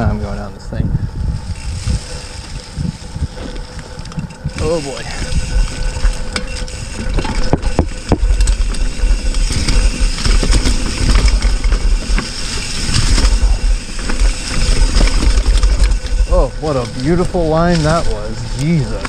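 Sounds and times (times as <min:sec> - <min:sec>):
tyres rumbling on dirt trail: 0:00.0 - 0:19.0
wind buffeting microphone: 0:00.0 - 0:19.0
bike knocking over bumps: 0:05.5 - 0:19.0.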